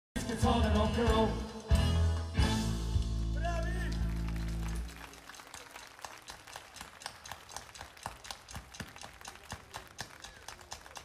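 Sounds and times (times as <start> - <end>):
sparse audience clapping: 3.4 - 11.0.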